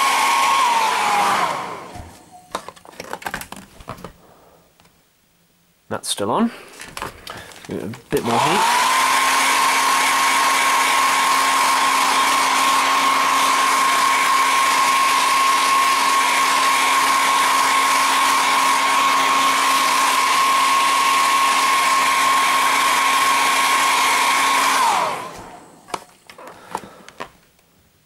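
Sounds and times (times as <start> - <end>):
hair dryer blowing: 0.0 - 2.3, 8.1 - 27.0.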